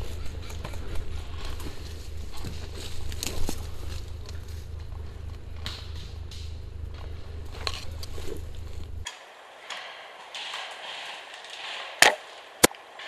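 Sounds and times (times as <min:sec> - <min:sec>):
rustling in undergrowth: 0:00.0 - 0:10.2
steady low hum: 0:00.0 - 0:13.0.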